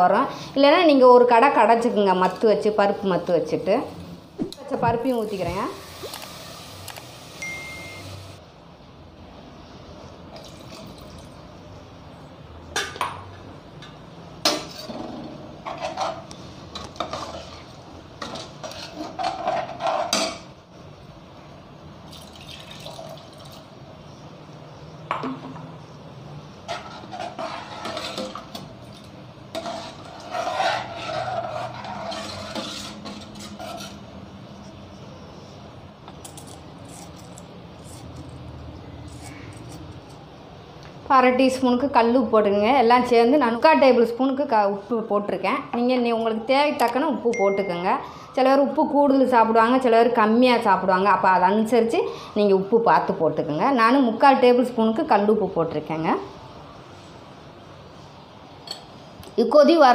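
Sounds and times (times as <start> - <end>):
water pouring: 22.1 - 23.6
ladle scraping in steel pot: 26.6 - 28.6, 29.5 - 34.1.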